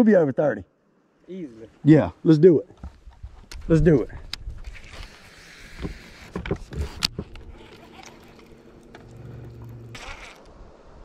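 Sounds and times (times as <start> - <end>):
trolling motor electric hum: 5.6 - 10.5.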